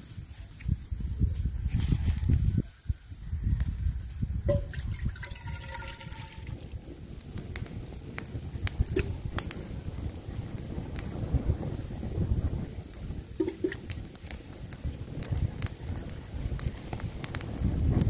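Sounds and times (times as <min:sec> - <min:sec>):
wind rumbling on microphone: 0:00.0 - 0:18.0
ginger knocking in metal pot: 0:04.5 - 0:06.5, 0:13.4 - 0:13.9
pot ringing faintly: 0:04.5 - 0:06.5, 0:13.4 - 0:13.8.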